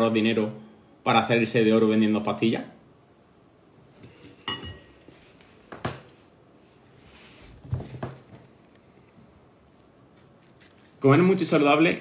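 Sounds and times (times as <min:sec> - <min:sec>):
metal fork clinking on ceramic bowl: 0:04.0 - 0:05.0.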